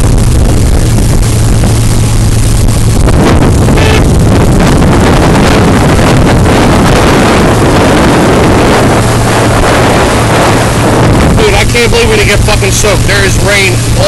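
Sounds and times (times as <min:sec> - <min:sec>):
motorboat engine drone: 0:00.0 - 0:14.0
wind buffeting microphone: 0:00.0 - 0:14.0.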